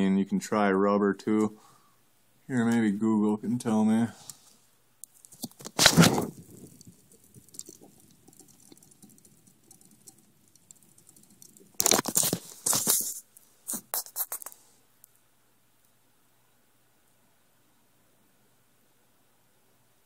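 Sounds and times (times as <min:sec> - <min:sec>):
faint crackling rustle: 0:03.5 - 0:16.0.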